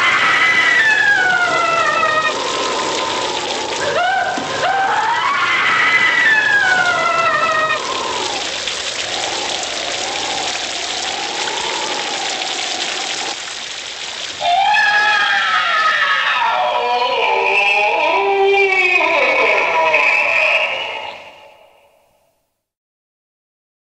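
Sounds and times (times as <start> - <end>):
eerie wavering moans: 0.0 - 13.4, 14.4 - 22.0
loud wailing: 0.0 - 13.4, 14.4 - 21.9
rain and storm wind: 0.0 - 15.8.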